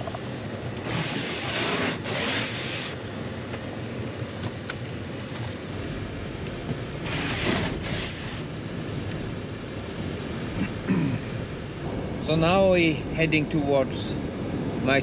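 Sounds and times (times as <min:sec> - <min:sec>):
car engine and tyre noise: 0:00.0 - 0:15.0.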